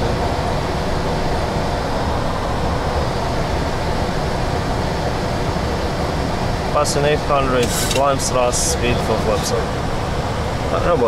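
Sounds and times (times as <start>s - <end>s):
jet engine noise: 0.0s - 11.0s.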